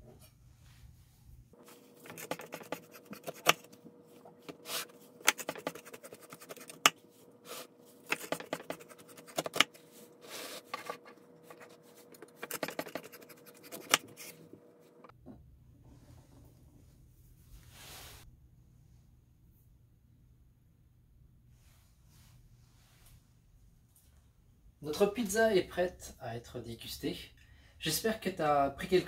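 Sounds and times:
blade cutting pizza crust: 1.7s - 3.8s, 4.5s - 14.4s.

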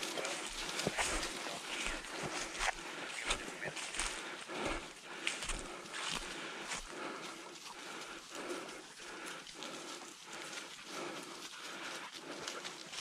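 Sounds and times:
footsteps in dry grass and leaves: 0.0s - 13.0s.

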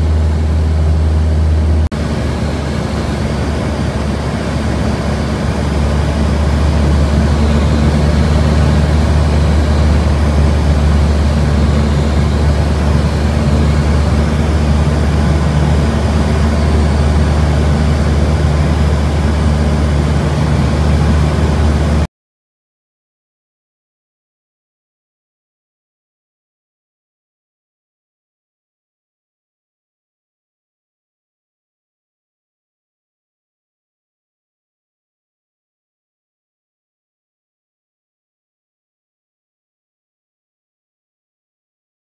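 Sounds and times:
propeller aircraft engine drone: 0.0s - 22.1s.

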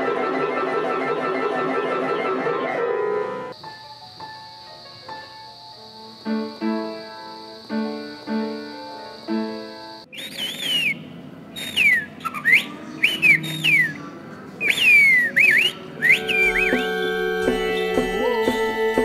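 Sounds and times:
upright piano chords: 0.0s - 10.1s, 15.4s - 19.0s
person whistling sliding phrases: 10.1s - 11.0s, 11.6s - 14.0s, 14.6s - 19.0s.

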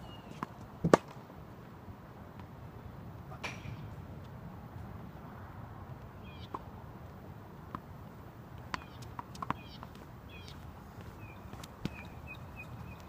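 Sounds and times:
racket hitting tennis ball: 0.8s - 1.2s
small birds chirping: 6.2s - 6.6s, 8.8s - 13.0s
tennis ball bouncing: 8.6s - 10.0s, 11.0s - 13.0s.

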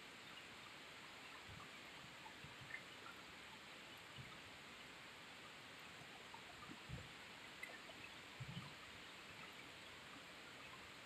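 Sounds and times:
faint steady rain: 0.0s - 11.0s
water dripping: 1.2s - 4.4s, 5.8s - 11.0s.

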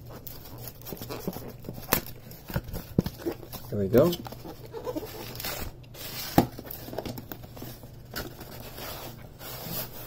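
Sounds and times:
cardboard box scraping and rustling: 7.6s - 10.0s.

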